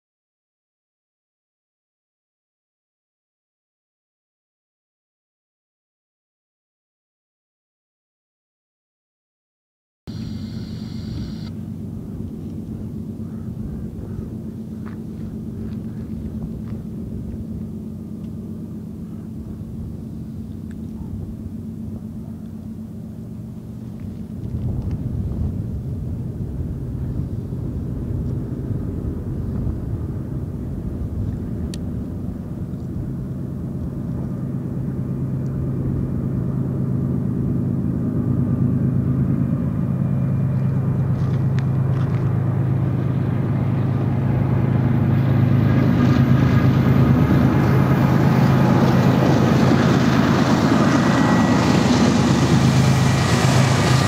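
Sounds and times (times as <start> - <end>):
diesel locomotive engines droning: 10.1 - 54.0.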